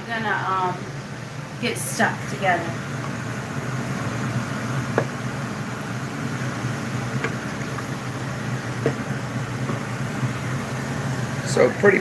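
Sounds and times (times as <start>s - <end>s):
appliance fan hum: 0.0s - 12.0s
wooden spoon knocking a pot: 8.8s - 9.9s.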